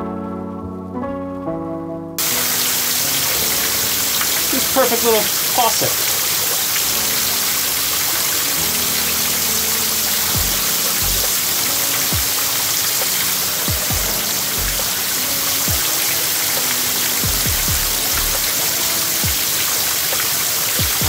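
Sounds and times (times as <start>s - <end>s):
background music with low notes: 0.0s - 21.0s
rushing hiss: 2.2s - 21.0s
deep drum hits: 10.4s - 11.4s, 13.7s - 14.9s, 17.2s - 18.5s.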